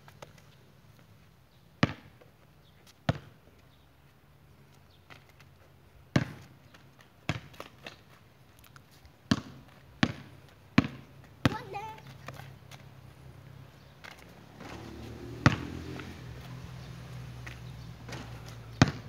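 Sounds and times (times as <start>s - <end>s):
basketball bouncing on concrete: 1.8s - 2.3s, 3.1s - 3.4s, 6.1s - 6.6s, 7.2s - 8.0s, 9.2s - 12.9s, 14.0s - 19.0s.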